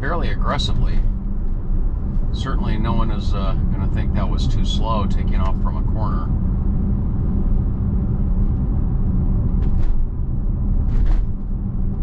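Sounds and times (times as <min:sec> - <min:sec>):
road and tyre rumble: 0:00.0 - 0:12.0.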